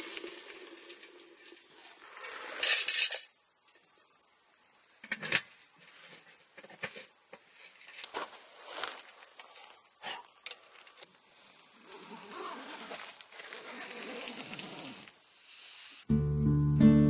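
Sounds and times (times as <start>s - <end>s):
soft rustling hiss: 0.0s - 16.1s
acoustic guitar music: 16.1s - 17.0s.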